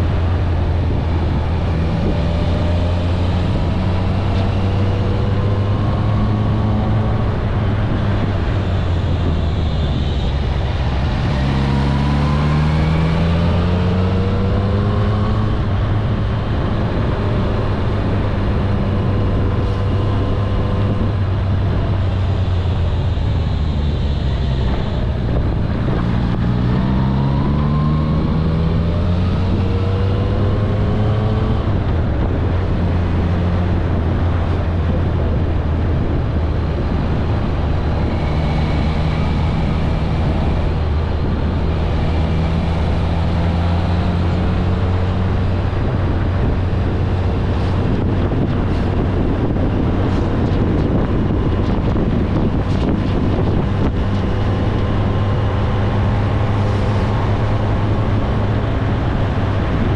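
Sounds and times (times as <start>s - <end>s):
motorcycle engine cruising and accelerating: 0.0s - 59.9s.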